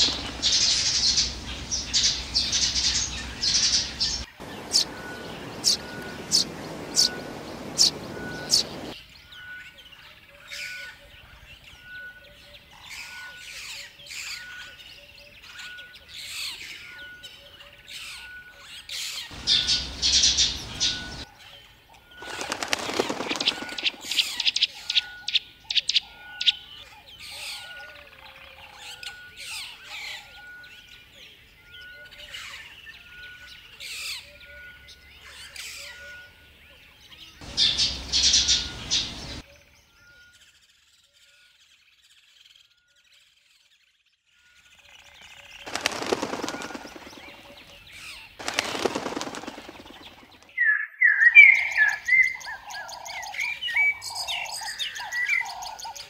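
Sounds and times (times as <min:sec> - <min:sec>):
wing flapping: 0:00.0 - 0:09.0, 0:19.3 - 0:21.2, 0:22.2 - 0:24.6, 0:37.4 - 0:39.4, 0:45.6 - 0:50.5
songbirds chirping and twittering: 0:00.0 - 0:56.0.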